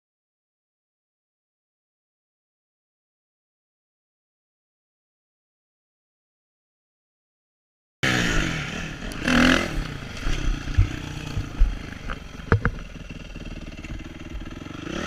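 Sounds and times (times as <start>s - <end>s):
motocross bike engine: 8.0s - 15.0s
sharp knocks over rough ground: 9.1s - 13.2s.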